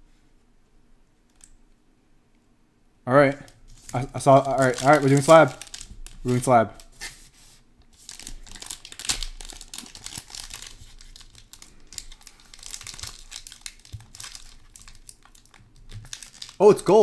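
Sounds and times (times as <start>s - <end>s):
foil pouch crinkling: 3.4s - 7.3s, 7.9s - 17.0s
foil pouch tearing open: 3.8s - 7.1s, 8.0s - 16.6s.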